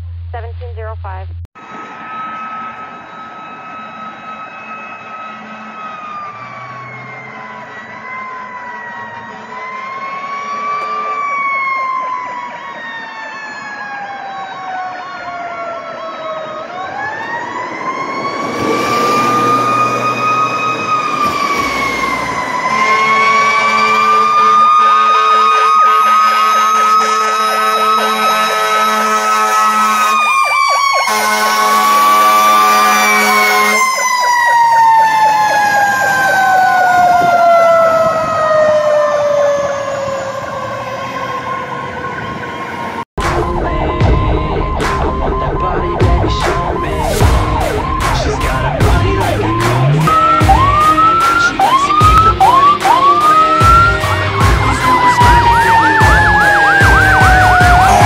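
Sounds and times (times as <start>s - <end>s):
mechanical siren wailing: 1.0s - 58.0s
low steady horn tone: 22.7s - 30.3s, 31.0s - 33.9s.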